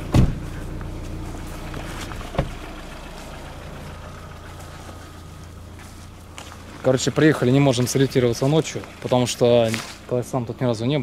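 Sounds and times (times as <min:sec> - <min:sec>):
car engine idling: 0:00.0 - 0:11.0
sharp thumps: 0:01.7 - 0:03.0.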